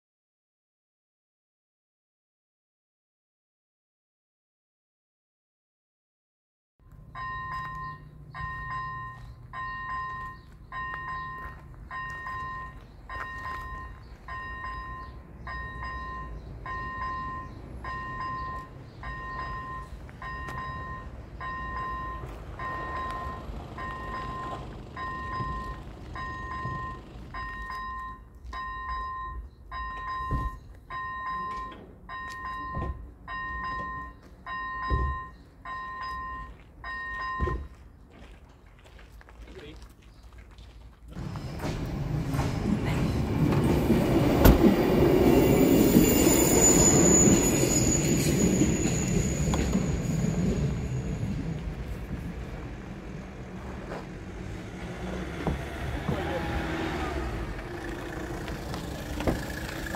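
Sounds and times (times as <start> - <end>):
level crossing warning bell: 6.9 - 37.8, 44.9 - 52.0.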